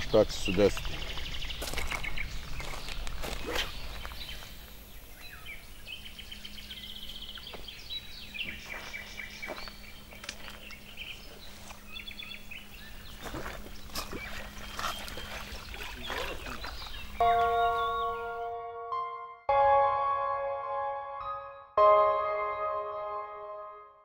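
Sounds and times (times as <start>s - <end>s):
songbirds singing and chirping: 0.0s - 18.6s.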